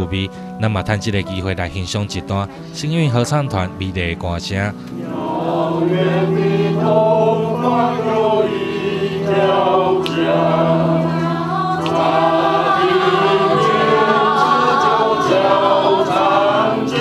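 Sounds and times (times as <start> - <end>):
mixed choir singing in harmony: 4.9 - 17.0.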